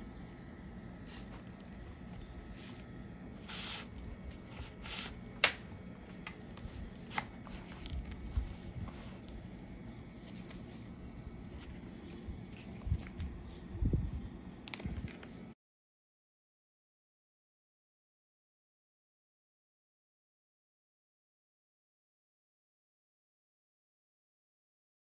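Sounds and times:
thread swishing through leather: 1.0 - 5.4.

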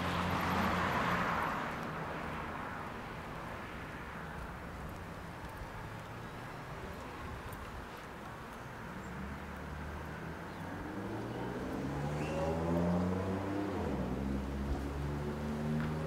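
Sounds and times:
vehicle engine accelerating: 9.0 - 16.0.

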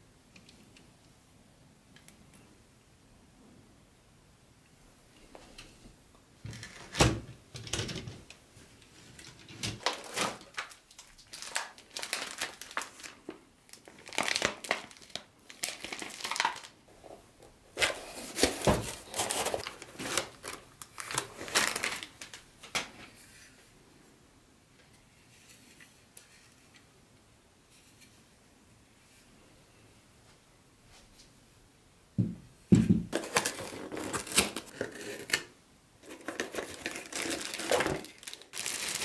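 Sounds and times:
packaging crinkling: 9.3 - 16.8, 17.7 - 22.9, 33.1 - 39.0.

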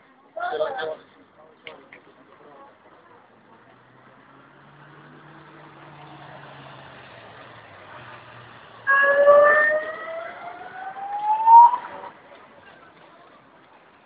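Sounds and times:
low hum of road traffic: 0.0 - 14.0
siren wail rising in pitch: 8.8 - 12.1.

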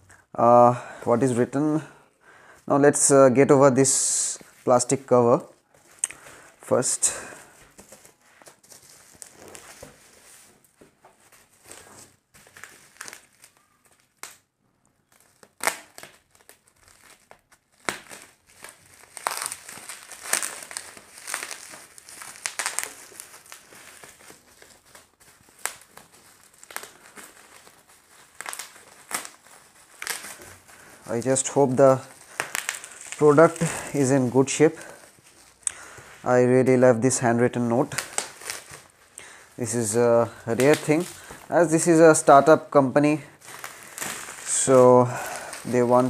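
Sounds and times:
bubble wrap crinkling and rustling: 2.6 - 46.0
sharp crackles: 12.5 - 36.2, 37.5 - 42.4, 43.0 - 46.0.

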